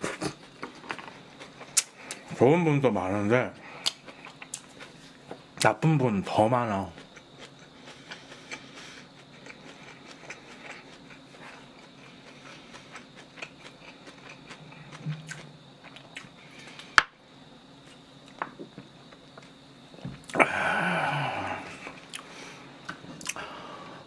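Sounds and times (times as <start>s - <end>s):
wet chewing clicks: 7.0s - 16.3s.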